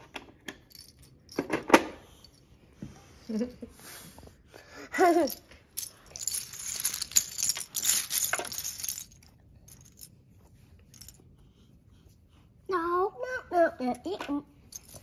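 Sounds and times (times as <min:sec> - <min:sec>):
plastic game pieces clattering: 0:05.2 - 0:10.1, 0:14.7 - 0:15.0.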